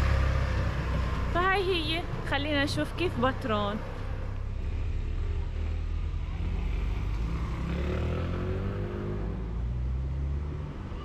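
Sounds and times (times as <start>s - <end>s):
car engine rumble: 0.0s - 7.6s
road noise: 0.0s - 11.0s.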